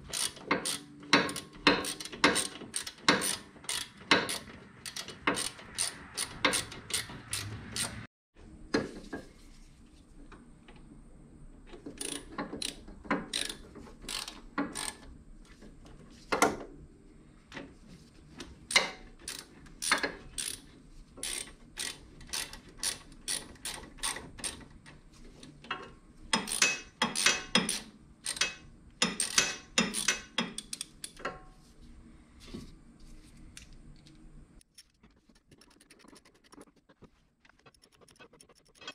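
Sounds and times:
ratchet wrench clicking: 0:00.1 - 0:08.0, 0:12.0 - 0:15.0, 0:18.7 - 0:20.6, 0:21.2 - 0:24.6, 0:26.4 - 0:31.2.

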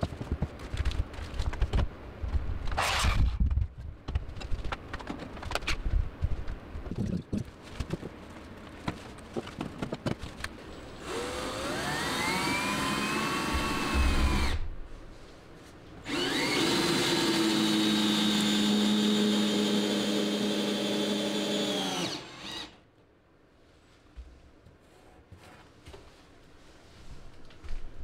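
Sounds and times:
cordless drill driving screws: 0:11.0 - 0:14.6, 0:16.1 - 0:22.8.

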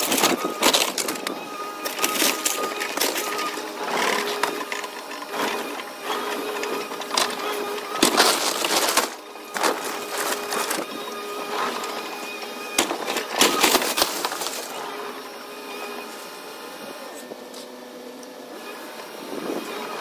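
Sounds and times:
excavator engine and hydraulics whine: 0:00.0 - 0:20.0
falling debris: 0:07.1 - 0:10.9, 0:12.8 - 0:14.8
splintering wood crashes: 0:07.1 - 0:10.9, 0:12.7 - 0:14.8.

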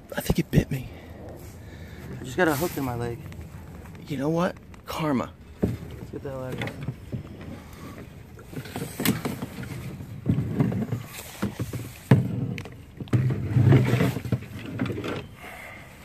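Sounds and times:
paddle knocking against boat: 0:05.5 - 0:15.2.

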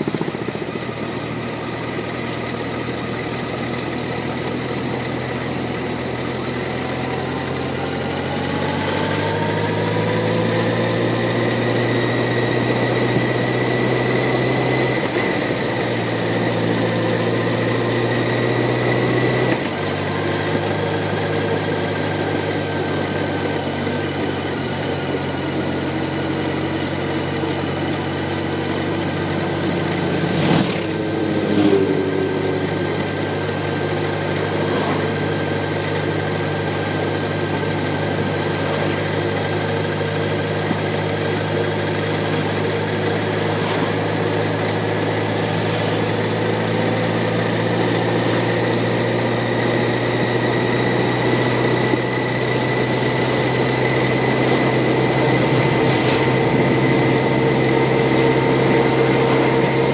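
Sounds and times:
motorcycle engine humming: 0:00.0 - 0:59.9
wind and road noise: 0:28.9 - 0:36.4, 0:40.6 - 0:59.9.

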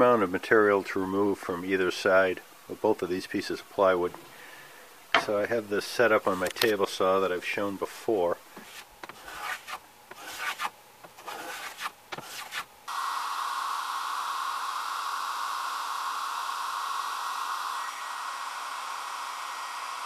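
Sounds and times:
hand plane shaving wood: 0:08.6 - 0:12.7
hair dryer blowing: 0:12.9 - 0:20.0.

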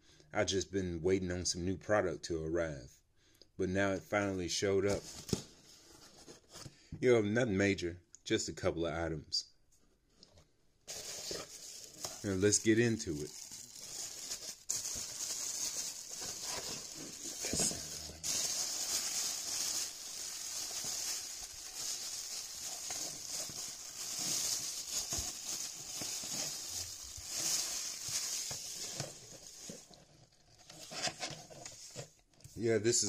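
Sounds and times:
plastic bag crinkling: 0:10.9 - 0:31.2.

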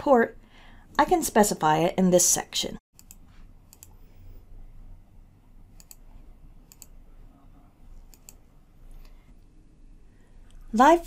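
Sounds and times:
faint room hum: 0:00.0 - 0:11.0
computer mouse clicking: 0:03.0 - 0:04.0, 0:05.7 - 0:07.0, 0:08.0 - 0:09.2.

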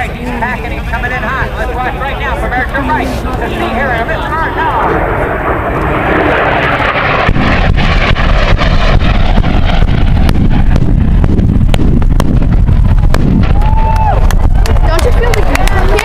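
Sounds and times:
deep rumbling blasts: 0:00.0 - 0:16.0
jet engine noise: 0:00.0 - 0:16.0
sharp cracks: 0:06.6 - 0:16.0.

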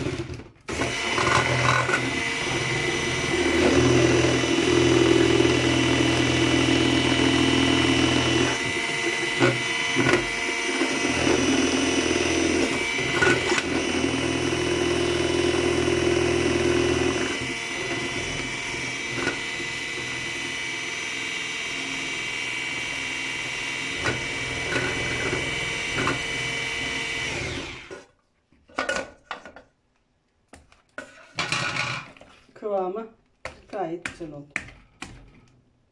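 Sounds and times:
electric hand mixer whining: 0:00.0 - 0:28.0.

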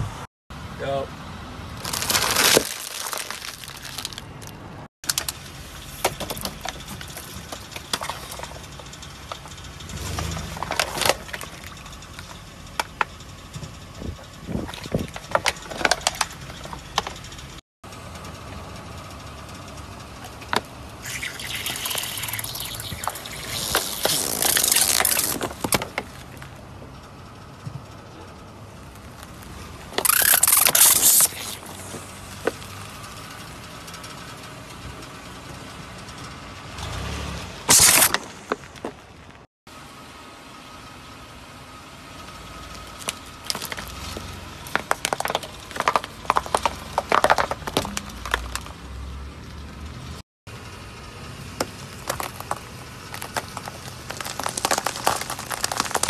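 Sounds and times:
tyres crushing crackling objects: 0:01.8 - 0:17.4, 0:20.2 - 0:26.6, 0:28.8 - 0:32.8, 0:36.8 - 0:39.5, 0:42.9 - 0:49.0, 0:51.5 - 0:56.0.

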